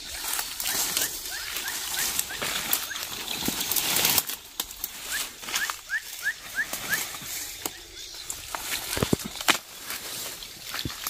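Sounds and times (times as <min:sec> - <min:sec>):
bird chirping: 0:00.0 - 0:03.9, 0:04.9 - 0:09.4
dry grass and leaves rustling: 0:00.0 - 0:11.0
twigs snapping: 0:00.0 - 0:11.0.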